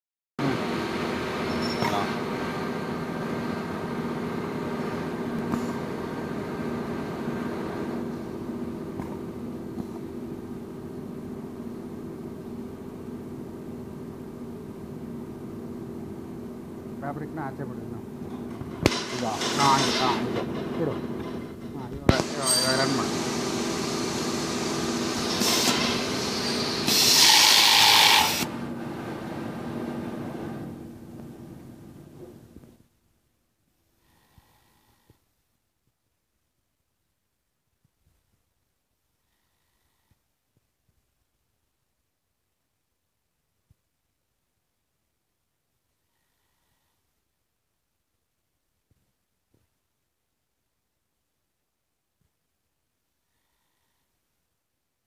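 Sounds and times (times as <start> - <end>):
sewing machine motor humming: 18.5 - 28.6
loud hiss: 22.1 - 28.5.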